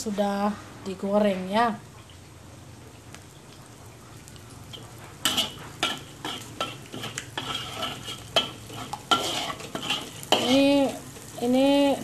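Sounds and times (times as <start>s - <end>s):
oil sizzling: 1.6s - 12.0s
metal spatula scraping pan: 5.2s - 11.0s.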